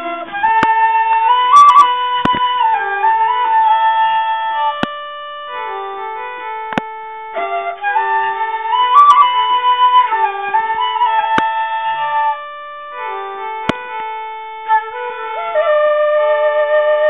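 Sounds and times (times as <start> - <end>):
slow melody over held notes: 0.0 - 17.0
sharp clicks: 1.8 - 2.6, 6.7 - 6.9.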